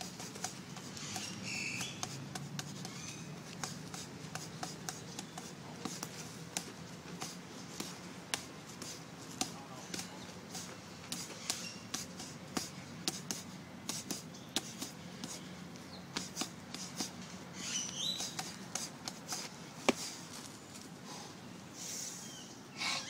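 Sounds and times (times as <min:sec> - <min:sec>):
limbs smacking tree trunk: 0:00.0 - 0:15.4, 0:17.8 - 0:20.5.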